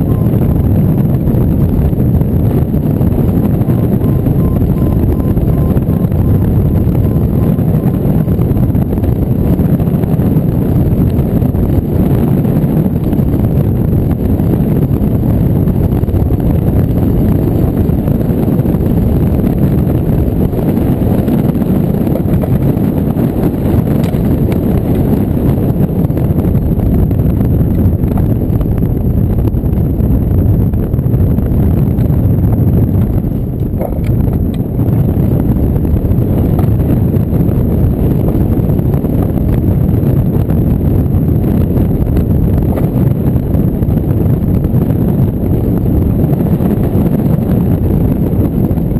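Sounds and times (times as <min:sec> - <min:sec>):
wind buffeting microphone: 0:00.0 - 0:48.9.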